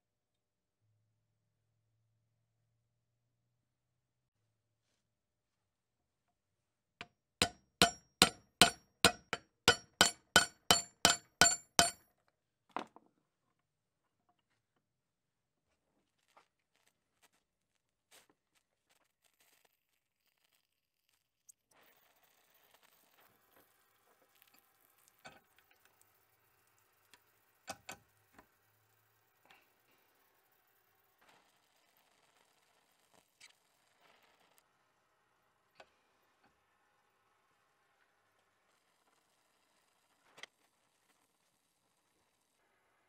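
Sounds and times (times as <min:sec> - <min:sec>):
metal-on-metal taps ringing: 0:07.4 - 0:12.0.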